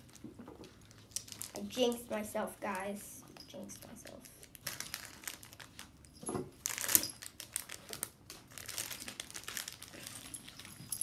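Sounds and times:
plastic packaging crinkling: 0:00.0 - 0:02.2, 0:03.8 - 0:11.0.

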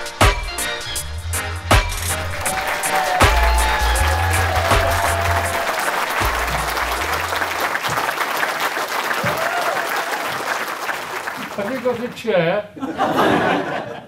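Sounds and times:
music with low bass: 0:00.0 - 0:07.4
audience applauding: 0:01.9 - 0:12.4.

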